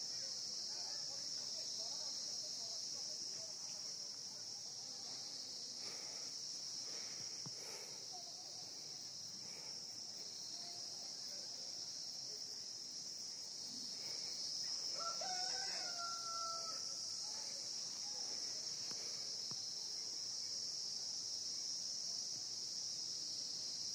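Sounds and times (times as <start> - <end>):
insects chorus: 0.0 - 23.9
rooster crowing: 14.9 - 17.0.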